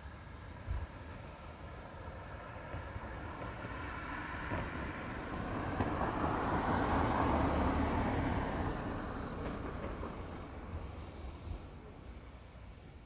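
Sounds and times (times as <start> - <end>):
vehicle passing by: 2.4 - 11.4.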